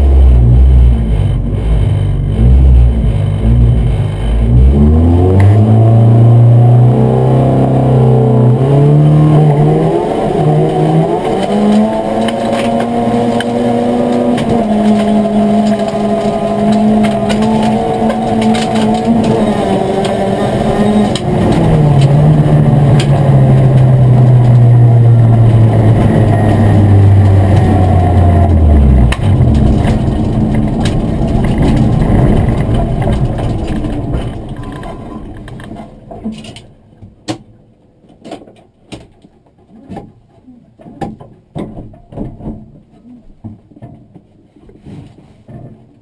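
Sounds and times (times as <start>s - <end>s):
rally car engine running: 0.0s - 36.9s
tyres on gravel: 9.7s - 36.7s
clicks and knocks in car: 38.1s - 44.4s.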